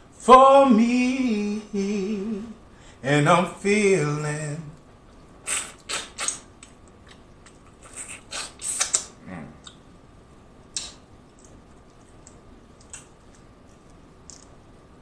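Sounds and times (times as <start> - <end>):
wet chewing and smacking: 6.2 - 7.8, 10.7 - 14.5.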